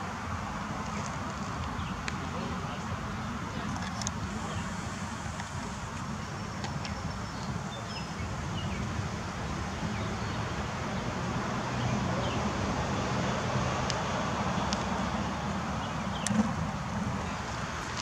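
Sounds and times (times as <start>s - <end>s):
rushing hiss: 4.2s - 6.2s.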